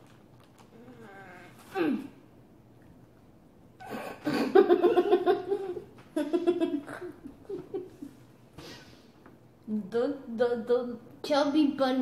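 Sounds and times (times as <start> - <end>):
giggling laughter: 3.9 - 8.2.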